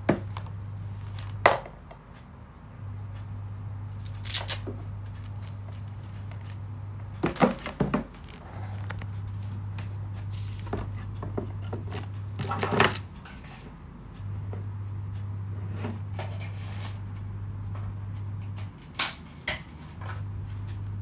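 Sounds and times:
steady low hum: 0.0s - 21.0s
power adapter cable rustling: 7.2s - 13.1s.

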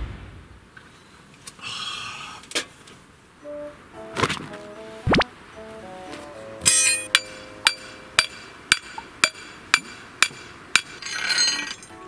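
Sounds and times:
faint background music: 3.4s - 8.9s, 11.3s - 12.0s
rustling noise: 4.1s - 6.4s
hammer striking metal rod: 6.6s - 11.9s.

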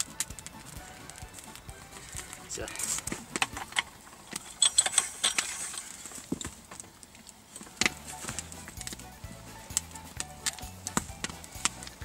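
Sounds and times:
metallic clicks and clinks: 2.8s - 6.2s.

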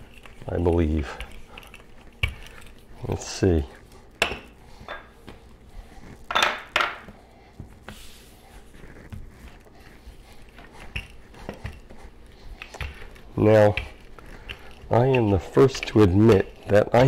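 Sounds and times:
dough rubbing and clicks: 0.0s - 6.3s, 7.0s - 17.0s
dough scraping swishes: 7.2s - 17.0s.

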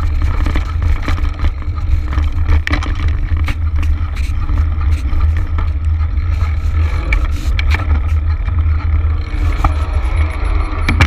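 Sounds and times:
bike tyres crunching on gravel: 0.0s - 10.5s
bike rattling clicks: 0.0s - 11.0s.

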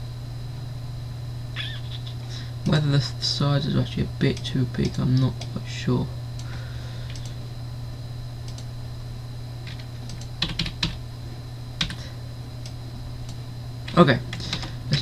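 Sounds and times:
low steady hum: 0.0s - 15.0s
keyboard keys clicking: 9.7s - 11.0s, 11.8s - 12.0s.

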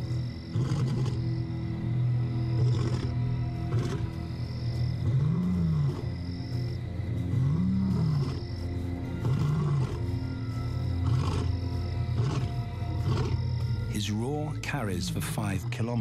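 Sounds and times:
lion roaring: 0.5s - 1.2s, 2.6s - 4.1s, 5.0s - 6.2s, 7.2s - 8.4s, 9.1s - 10.1s, 11.0s - 13.4s.

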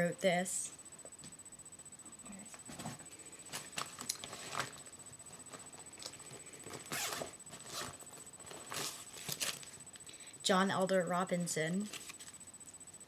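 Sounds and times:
rustling and scraping: 2.6s - 9.8s.

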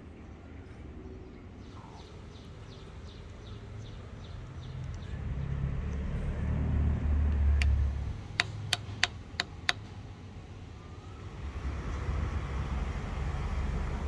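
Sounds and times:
passing vehicle rumble: 1.9s - 9.0s, 9.9s - 14.0s
sharp clicks: 4.4s - 5.1s, 7.3s - 9.9s.

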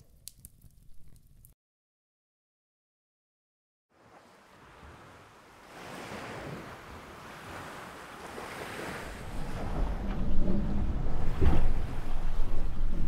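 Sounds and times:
sea waves: 3.9s - 13.0s
wind: 3.9s - 13.0s
deep low rumble: 9.3s - 13.0s.

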